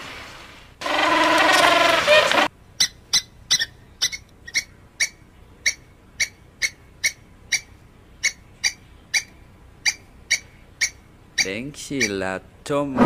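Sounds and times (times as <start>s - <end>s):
squirrel barking: 0.8s - 12.3s.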